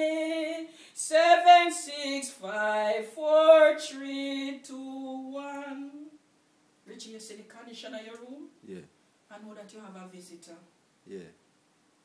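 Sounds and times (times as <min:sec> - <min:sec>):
woman singing a hymn unaccompanied: 0:00.0 - 0:06.2, 0:06.9 - 0:08.5.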